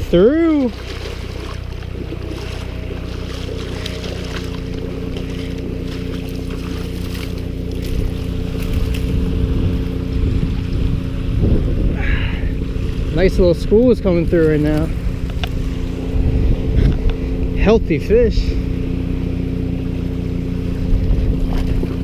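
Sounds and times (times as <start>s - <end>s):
low engine drone: 0.0s - 22.0s
wind buffeting microphone: 0.0s - 22.0s
dry reeds rustling: 1.0s - 10.1s.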